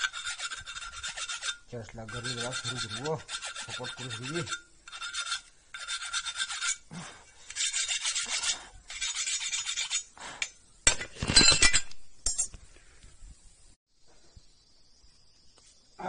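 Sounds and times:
abrasive rubbing on brake shoe: 0.0 - 6.9
rough scrape: 0.0 - 11.9.

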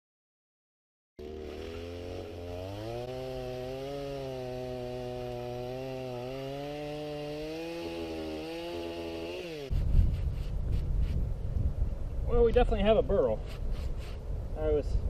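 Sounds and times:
chainsaw cutting log: 1.2 - 11.1.

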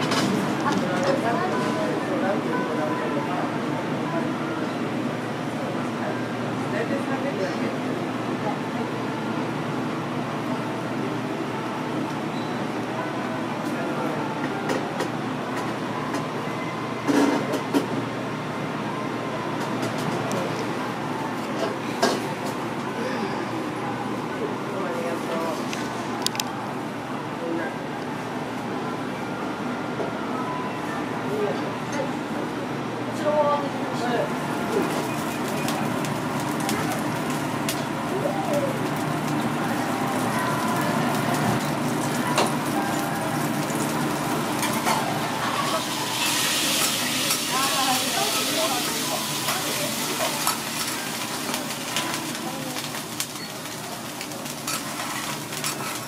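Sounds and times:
restaurant room hum: 0.0 - 56.0
food sizzling on a griddle: 34.5 - 56.0.

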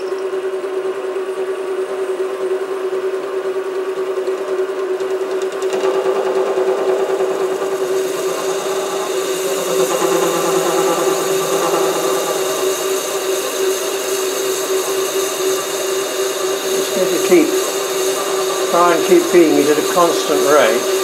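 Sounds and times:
lathe whining: 4.4 - 21.0
parting tool cutting metal hiss: 6.6 - 21.0.

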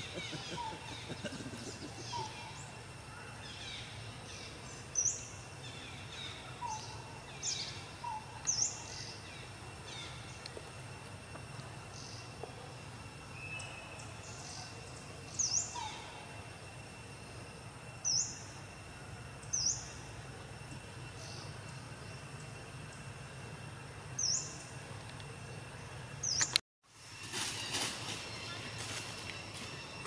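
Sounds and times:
birds chirping: 0.0 - 2.8
outdoor background noise: 0.0 - 30.0.

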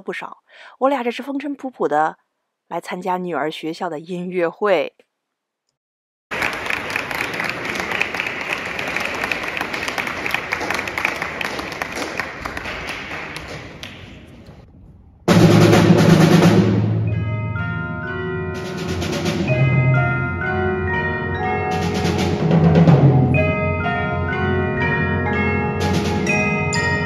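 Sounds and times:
audience applause: 6.3 - 14.5
pitched mallet notes: 17.0 - 27.0.

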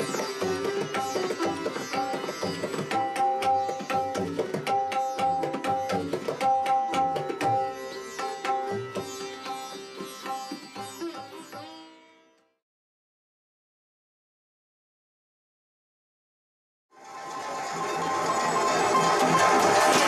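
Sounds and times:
quick tabla strokes: 0.0 - 11.8, 17.1 - 20.0
plucked sitar melody: 0.0 - 12.6, 16.9 - 20.0.

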